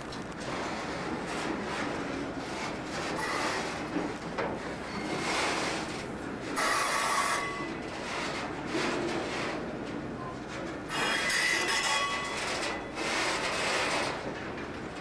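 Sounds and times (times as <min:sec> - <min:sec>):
steel wheels grinding on rails: 0:00.0 - 0:15.0
high wheel squeal: 0:10.9 - 0:13.0.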